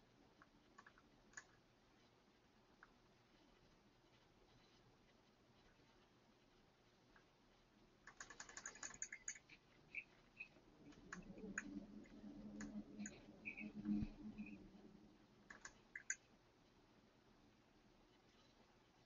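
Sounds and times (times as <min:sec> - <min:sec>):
faint low hum: 0:00.0 - 0:19.0
keyboard typing: 0:00.4 - 0:01.6, 0:08.0 - 0:14.6, 0:15.4 - 0:16.3
mouse clicks: 0:08.1 - 0:14.6, 0:15.5 - 0:16.3.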